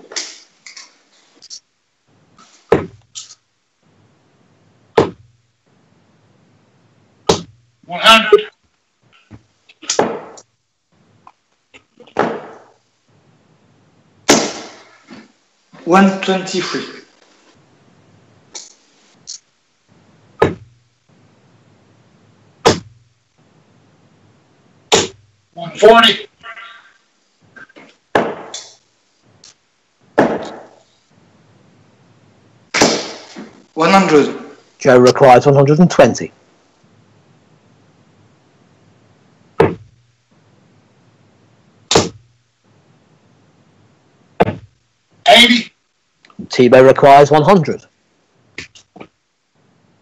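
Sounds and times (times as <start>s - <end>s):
darts thudding into dartboard: 5.0s - 5.3s, 7.3s - 7.6s, 9.9s - 10.4s, 12.2s - 12.7s, 20.4s - 20.8s, 28.2s - 28.7s, 39.6s - 40.0s.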